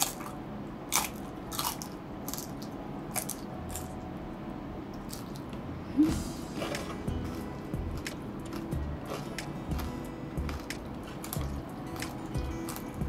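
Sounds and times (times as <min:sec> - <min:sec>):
chewing crispy food: 0:00.0 - 0:04.0, 0:05.0 - 0:13.0
person humming: 0:05.9 - 0:07.0.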